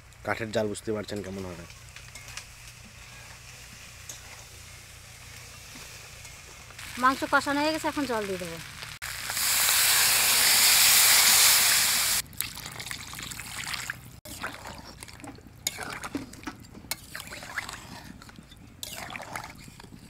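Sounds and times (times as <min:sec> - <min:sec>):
water hissing in hot pan: 0:01.6 - 0:12.2
curry bubbling and popping: 0:12.2 - 0:20.0.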